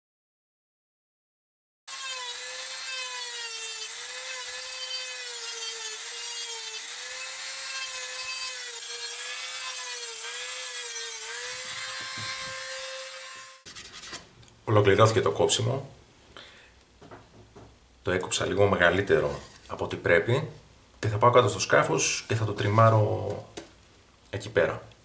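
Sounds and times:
rotary tool cutting whine: 1.9 - 13.6.

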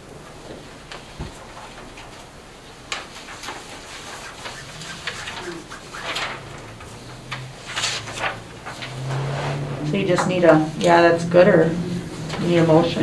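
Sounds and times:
paper pages rustling: 3.0 - 9.4.

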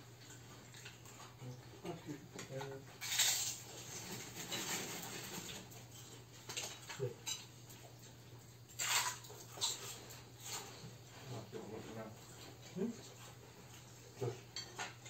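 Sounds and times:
cutlery clinking on plates: 4.2 - 7.8, 14.5 - 15.0.

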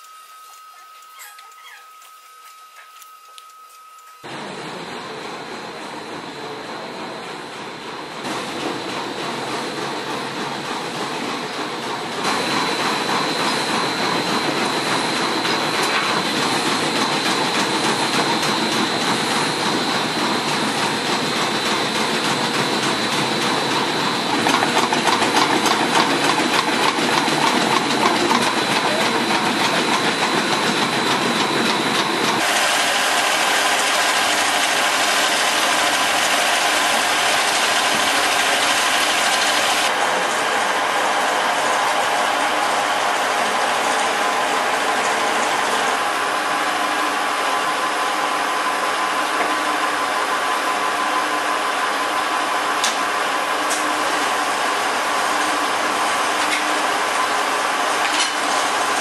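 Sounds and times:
high steady whine: 0.0 - 8.3
winding machine humming: 9.2 - 58.0.

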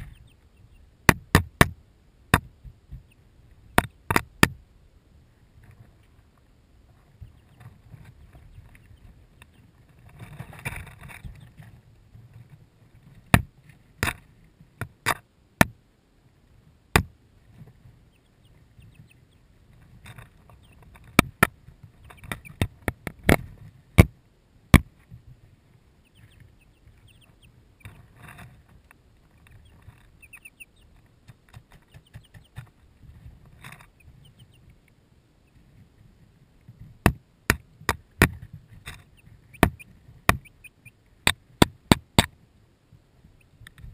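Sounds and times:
chicks pecking at camera: 0.0 - 1.7, 2.3 - 4.6, 6.9 - 14.2, 17.5 - 24.1, 26.0 - 35.8, 37.8 - 42.4.

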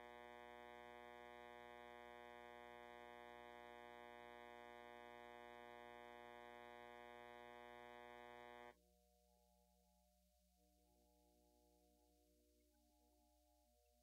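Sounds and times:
faint electronic hum: 0.0 - 8.8.

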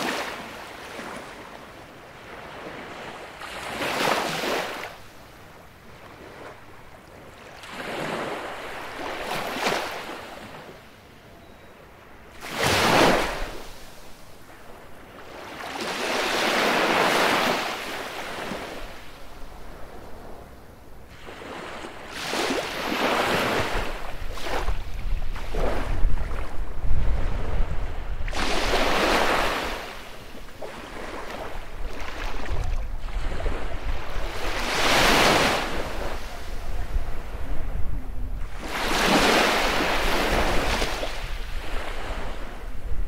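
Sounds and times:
waves breaking on beach: 0.0 - 5.2, 6.0 - 10.8, 12.3 - 19.9, 21.1 - 37.7, 38.4 - 43.0
wind rumble on microphone: 18.4 - 43.0.

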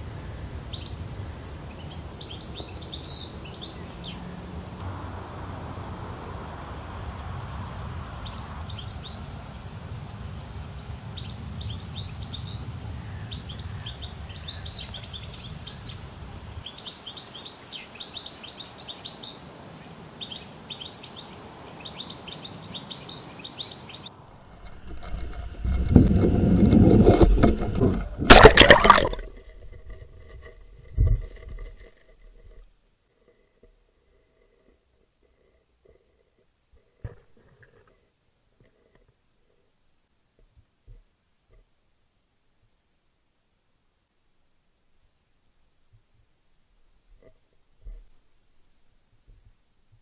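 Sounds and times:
songbird singing: 0.0 - 5.0, 7.0 - 9.6, 10.4 - 25.3
low steady rumble: 24.1 - 28.4
muffled water sloshing: 24.2 - 31.8.

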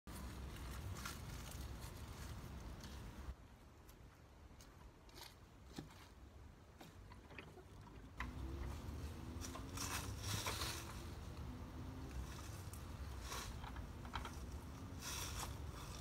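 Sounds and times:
plastic tube and bag rustling: 9.2 - 11.1.

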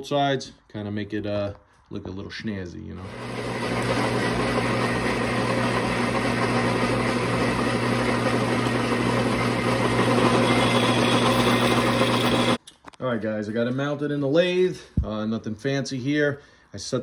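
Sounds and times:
metal lathe cutting: 3.1 - 12.6.

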